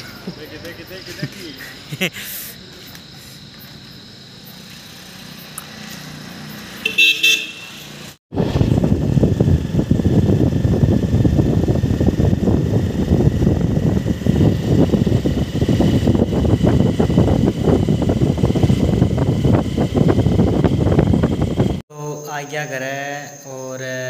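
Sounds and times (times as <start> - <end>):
road noise: 0.0 - 21.8
motorcycle engine: 2.9 - 21.8
wind buffeting microphone: 8.3 - 21.8.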